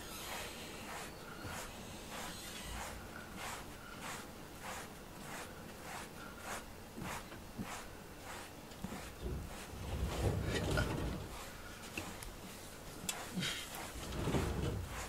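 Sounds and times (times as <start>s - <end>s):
brush swishing through fur: 0.0s - 15.0s.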